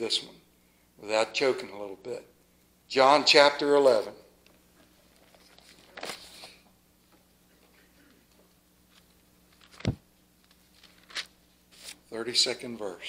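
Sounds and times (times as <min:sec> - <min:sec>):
book pages rustling: 0:04.8 - 0:06.6, 0:08.9 - 0:12.0.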